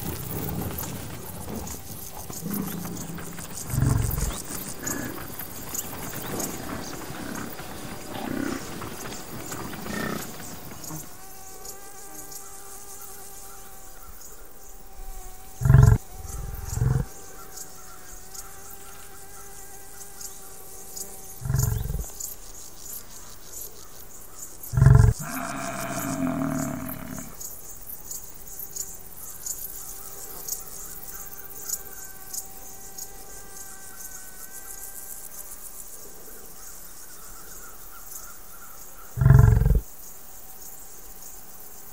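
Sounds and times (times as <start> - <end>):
water buffalo grunting: 2.0 - 11.0, 15.6 - 17.2, 21.4 - 22.1, 24.7 - 27.4, 39.2 - 39.8.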